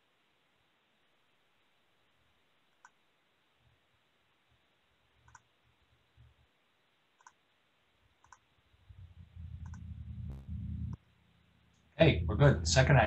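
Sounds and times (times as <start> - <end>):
faint clicks: 2.7 - 3.0, 5.2 - 5.5, 7.2 - 7.4, 8.2 - 11.1
low rumble: 8.8 - 13.0.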